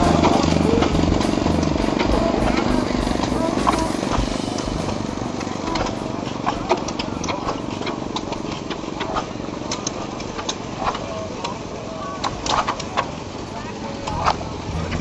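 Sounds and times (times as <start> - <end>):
sharp clicks and knocks: 0.0 - 11.6
stationary engines chugging: 0.0 - 15.0.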